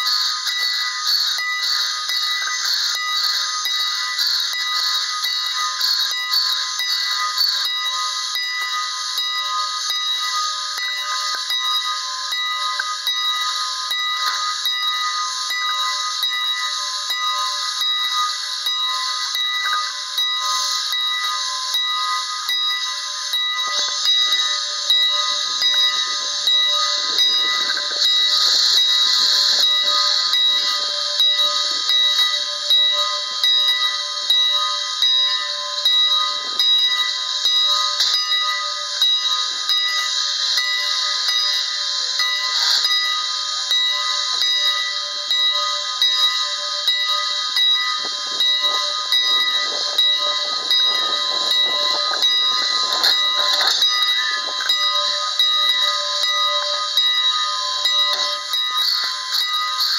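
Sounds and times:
rail and machinery noise: 0:00.0 - 0:59.9
steam locomotive bell ringing: 0:00.0 - 0:59.9.

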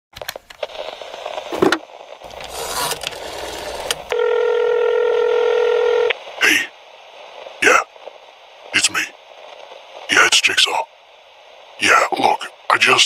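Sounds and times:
dial tone: 0:04.1 - 0:06.1.

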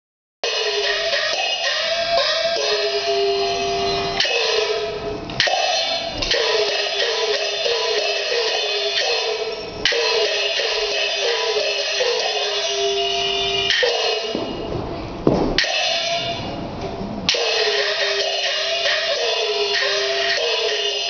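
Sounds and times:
gongs struck: 0:00.4 - 0:16.6.

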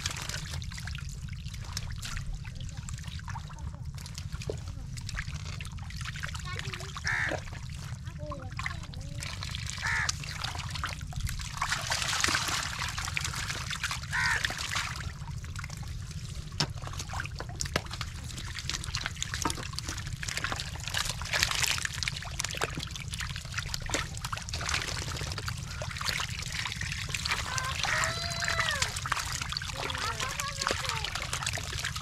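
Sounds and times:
fish splashing and slapping: 0:00.0 - 0:32.0
wet mud squelching: 0:16.4 - 0:32.0.

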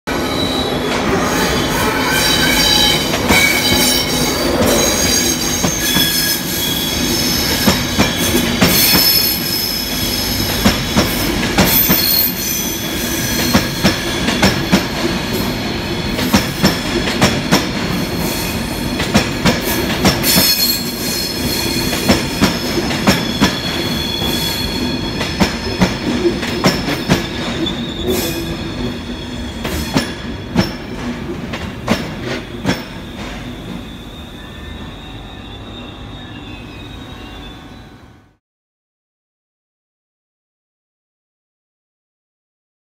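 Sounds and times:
train wheels squealing: 0:00.1 - 0:19.0, 0:19.6 - 0:31.1, 0:32.2 - 0:38.4
train wheels clacking over joints: 0:19.0 - 0:20.6.

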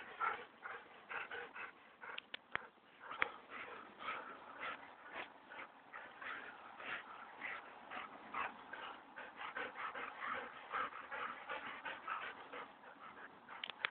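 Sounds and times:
dogs panting: 0:00.0 - 0:13.9
dogs growling while playing: 0:03.1 - 0:13.9.

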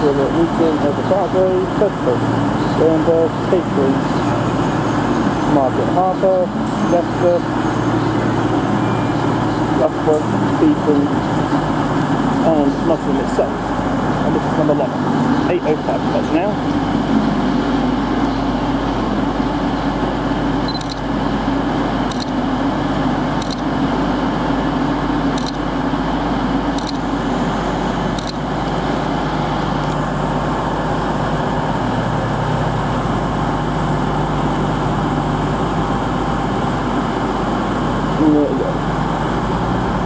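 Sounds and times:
diesel train engines idling: 0:00.0 - 0:40.0.

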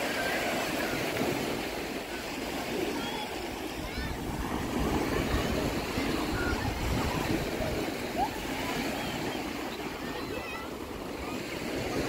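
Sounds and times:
faint voices: 0:00.0 - 0:12.0
waves washing up a shore: 0:00.0 - 0:12.0
wind rumble on microphone: 0:03.7 - 0:10.0.

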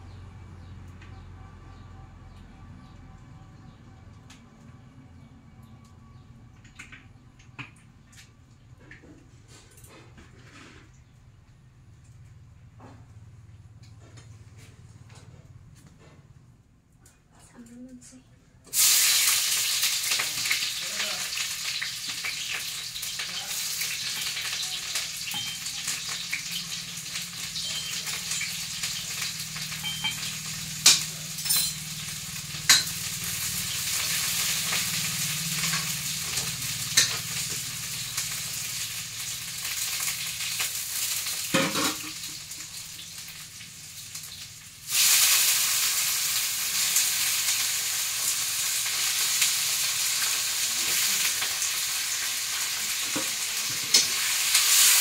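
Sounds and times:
food sizzling in hot oil: 0:18.7 - 0:55.0.

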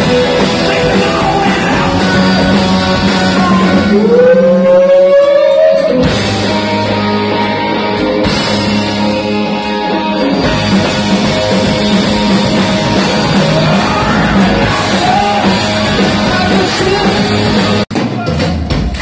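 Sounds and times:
person singing: 0:00.0 - 0:06.8, 0:12.1 - 0:18.3
electric guitars: 0:00.0 - 0:17.9
rock band playing: 0:00.0 - 0:19.0.

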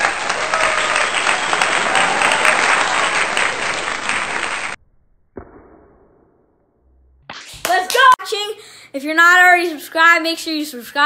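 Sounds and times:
crowd applause: 0:00.0 - 0:04.8
thud: 0:05.3 - 0:06.5.

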